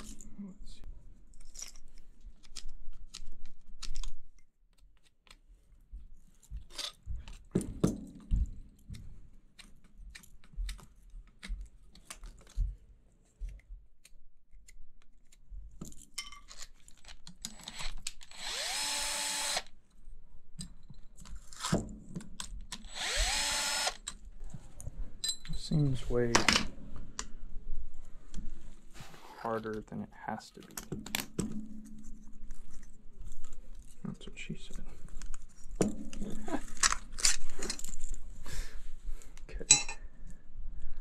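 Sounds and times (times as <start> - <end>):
cordless screwdriver whining: 17.5 - 19.7, 22.8 - 24.1.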